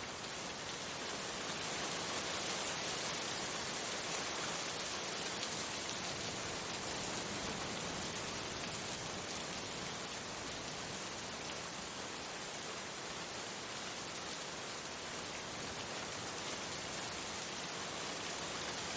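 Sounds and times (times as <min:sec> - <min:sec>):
steady rain hiss: 0:00.0 - 0:18.9.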